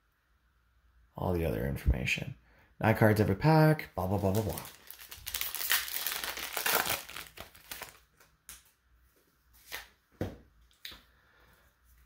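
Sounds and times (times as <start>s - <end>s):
foil wrapper tearing and crinkling: 4.0s - 8.1s.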